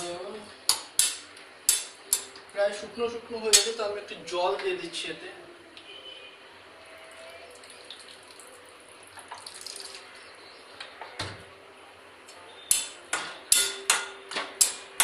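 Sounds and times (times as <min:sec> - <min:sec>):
water pouring into frying pan: 0:07.5 - 0:10.0
metal spatula knocking on pan: 0:12.7 - 0:14.8.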